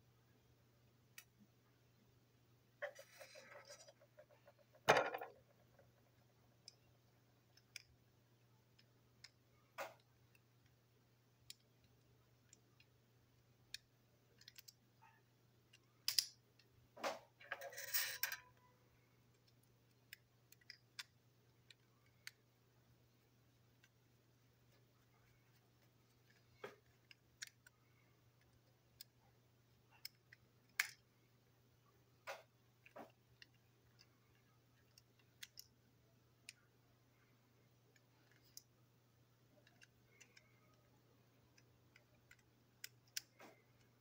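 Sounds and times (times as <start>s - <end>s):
low steady hum: 0.0s - 44.0s
plastic parts clicking on table: 13.7s - 14.8s, 15.7s - 18.6s, 19.3s - 22.4s, 41.5s - 44.0s.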